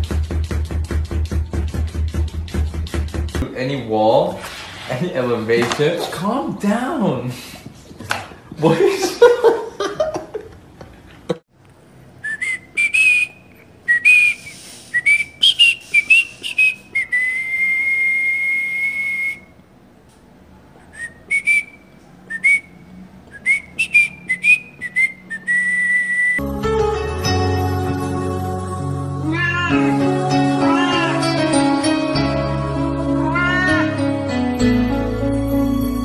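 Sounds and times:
person whistling: 12.2 - 19.5, 20.9 - 26.4.

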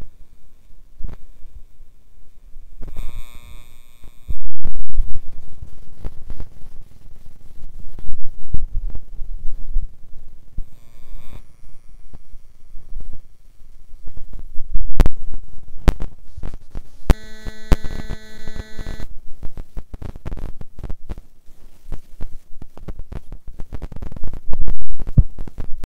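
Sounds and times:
steady pitched tone: 2.6 - 20.0
phone microphone jostled and rubbed: 4.0 - 25.8.

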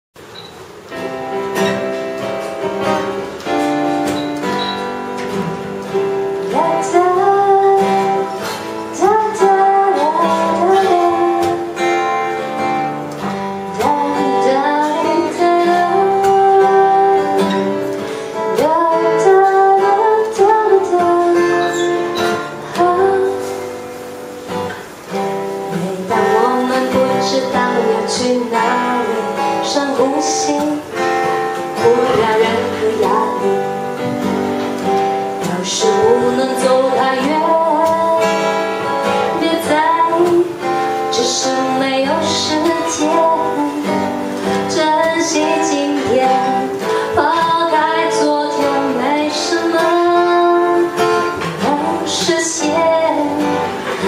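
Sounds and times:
acoustic guitar strumming: 0.2 - 54.0
woman singing into a microphone: 2.8 - 54.0.

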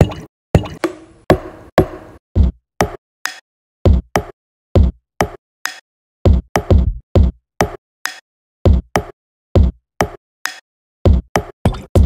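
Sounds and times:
sampler beat of thumps and knocks: 0.0 - 3.0, 3.9 - 5.4, 6.3 - 7.8, 8.7 - 10.2, 11.1 - 12.0.

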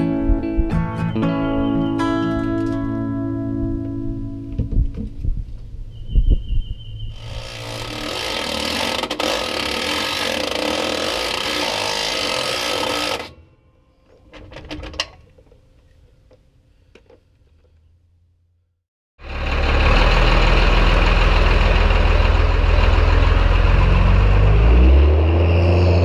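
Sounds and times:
cordless driver running bolts: 7.2 - 13.4.

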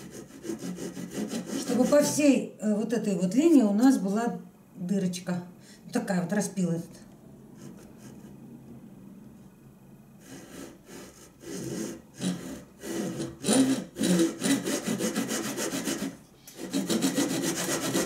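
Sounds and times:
handsaw rasping through wood: 0.0 - 2.2, 10.2 - 18.0.

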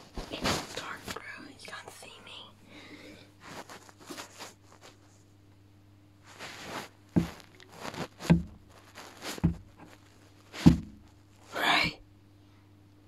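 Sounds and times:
soft rustling: 0.0 - 5.4, 6.2 - 11.8
dull thuds on a floor: 7.1 - 11.2.

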